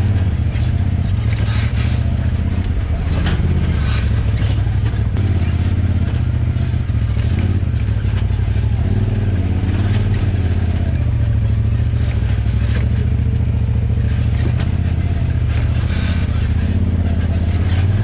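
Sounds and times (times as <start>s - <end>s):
vehicle engine running at low speed: 0.0s - 18.0s
chassis clunks and rattles: 0.2s - 8.4s, 12.0s - 17.9s.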